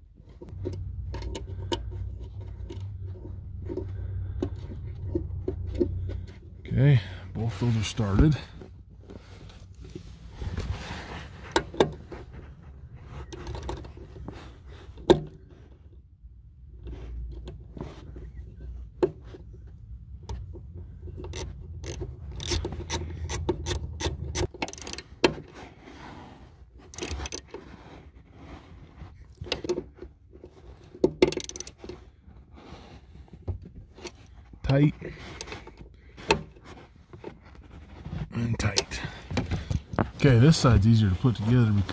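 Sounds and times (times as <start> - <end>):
low handling rumble: 0.4 - 14.7
scraping on carpet: 9.1 - 11.4, 25.6 - 26.7
hand ratchet clicking: 21.2 - 25.0, 26.9 - 27.4, 31.3 - 31.8.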